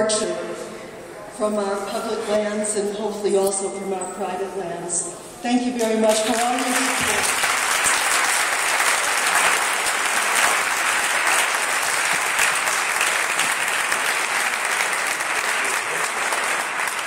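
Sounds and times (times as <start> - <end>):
audience applauding: 6.1 - 17.0.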